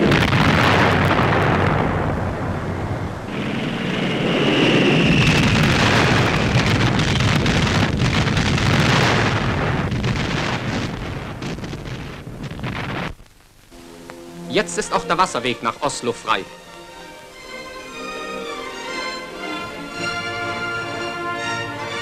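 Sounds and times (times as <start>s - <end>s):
rumbling explosions: 0.0s - 13.4s
faint falling whistle: 3.8s - 5.7s.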